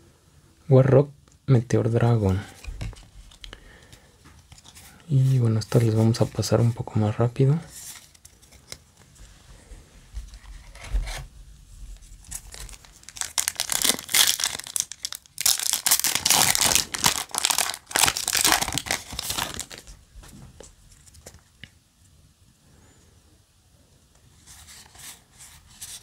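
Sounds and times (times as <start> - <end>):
foil wrapper tearing and crinkling: 12.2 - 19.9.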